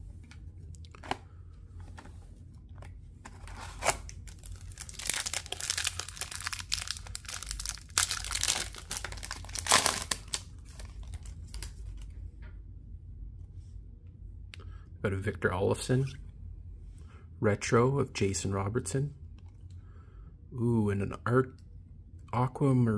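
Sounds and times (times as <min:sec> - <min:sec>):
cards shuffling: 0:02.8 - 0:12.1
card wrapper crinkling and tearing: 0:03.3 - 0:12.1.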